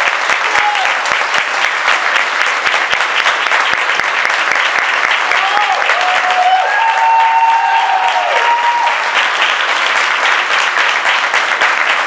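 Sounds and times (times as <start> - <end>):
audience applauding: 0.0 - 12.0
long held cheer: 0.1 - 1.5, 5.0 - 9.6.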